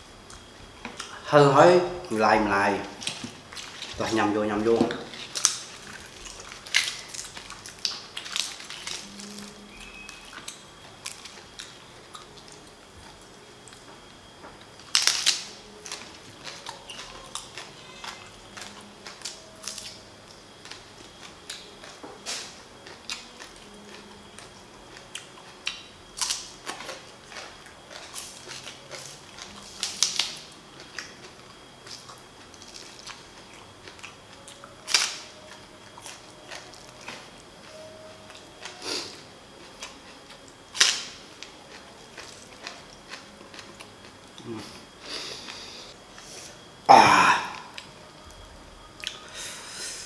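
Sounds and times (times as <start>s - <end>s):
green onion stalks crunching: 5.1s - 11.7s, 14.8s - 20.0s.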